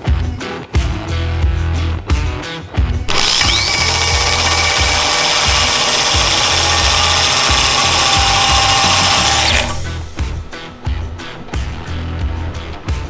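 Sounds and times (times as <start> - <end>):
power drill grinding whine: 3.1 - 12.2.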